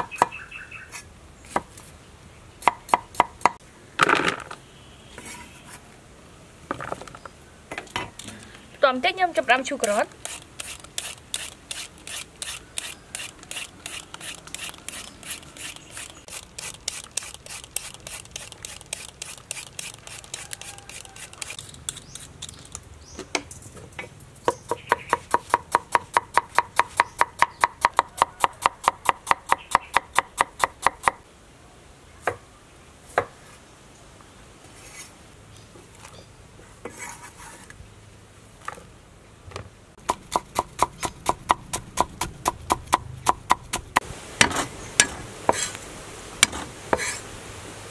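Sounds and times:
cleaver chopping on wooden board: 40.0s - 45.2s.

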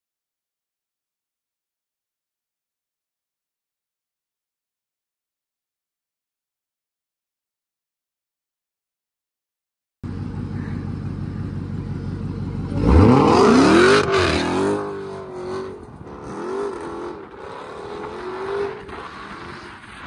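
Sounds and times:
car engine idling: 10.0s - 20.0s
car launching with tyres spinning: 12.7s - 20.0s.

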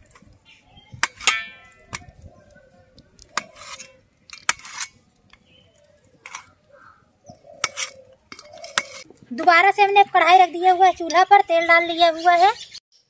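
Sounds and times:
knife scraping steel plate: 1.0s - 2.1s, 3.3s - 5.0s, 6.2s - 6.6s, 7.6s - 9.1s
knife tapping steel plate: 1.0s - 2.1s.

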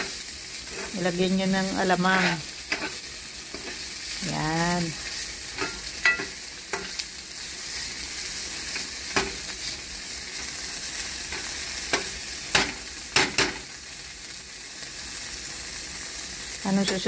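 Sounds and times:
metal spoon scraping a pan: 0.0s - 4.1s, 5.0s - 7.0s
food sizzling in a pan: 0.0s - 17.0s.

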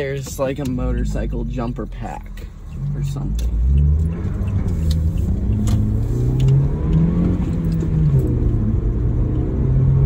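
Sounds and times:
car engine hum: 0.0s - 10.0s
road rumble: 0.0s - 10.0s.

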